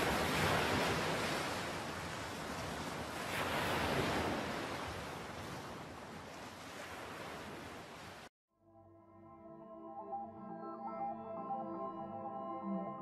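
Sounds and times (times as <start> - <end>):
hurricane winds: 0.0 - 8.3.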